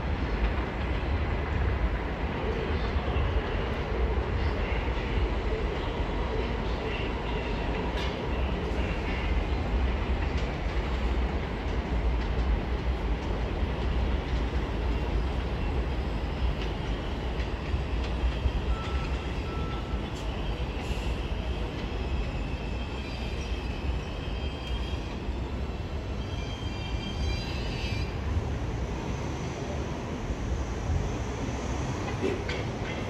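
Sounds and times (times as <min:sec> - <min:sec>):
train wheels rumbling on rails: 0:00.0 - 0:33.0
high train squealing: 0:13.7 - 0:33.0.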